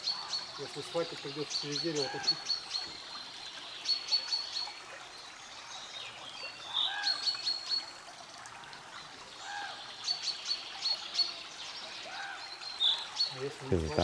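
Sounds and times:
bird calls: 0.0s - 3.1s, 6.4s - 7.9s, 9.4s - 14.0s.

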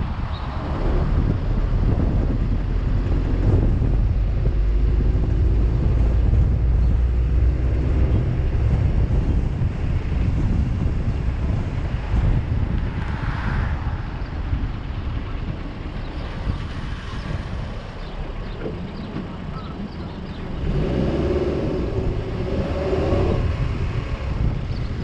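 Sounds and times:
road traffic rumble: 0.0s - 25.0s
wind noise on microphone: 0.0s - 25.0s
vehicle passing: 20.2s - 25.0s.

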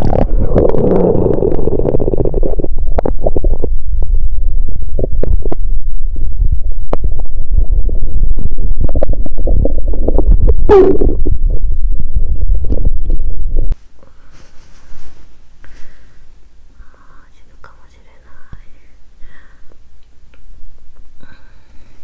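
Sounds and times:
stomach gurgling and rumbling: 0.0s - 13.8s.

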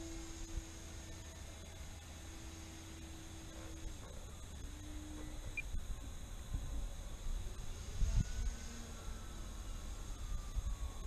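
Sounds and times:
distant model airplane motor hum: 0.0s - 11.0s.

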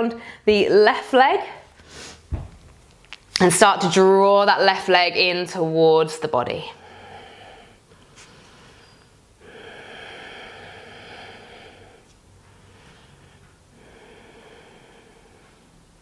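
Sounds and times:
woman breathing slowly: 0.2s - 0.5s, 6.8s - 16.0s.

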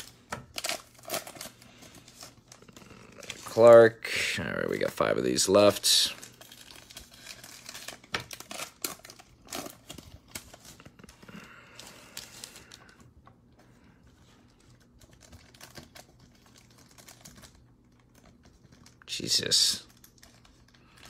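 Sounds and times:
foil wrapper crinkling: 0.0s - 3.9s, 4.7s - 13.0s, 14.4s - 21.0s.

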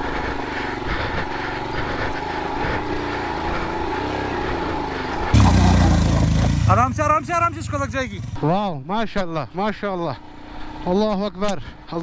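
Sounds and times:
motorcycle engine revving: 0.0s - 8.4s.

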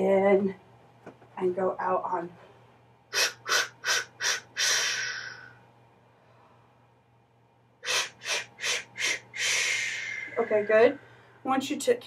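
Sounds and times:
singer hissing breath pulses: 3.1s - 5.6s, 7.8s - 11.4s.

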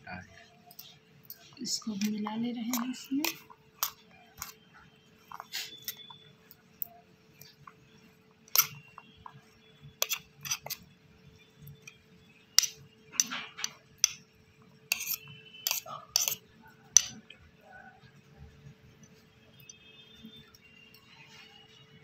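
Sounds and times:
spoon clinking on steel plate: 8.5s - 8.8s, 14.9s - 17.2s.

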